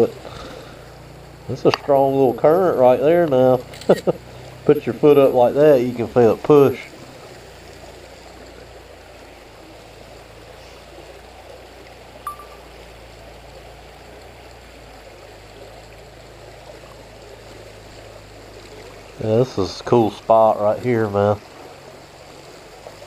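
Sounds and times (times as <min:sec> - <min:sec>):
creek water trickling over stones: 0:00.0 - 0:23.0
short sharp blip: 0:12.3 - 0:12.7.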